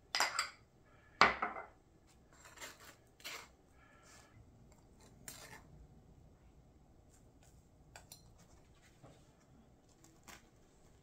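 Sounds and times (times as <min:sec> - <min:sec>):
knife scraping toasted bun: 0:02.3 - 0:03.6.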